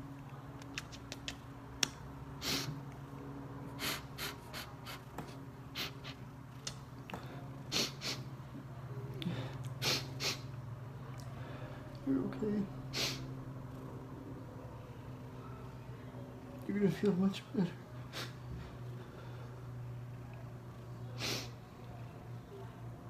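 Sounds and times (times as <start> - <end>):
person sniffling: 3.8 - 5.0, 7.7 - 8.3, 9.2 - 10.5, 12.9 - 13.2.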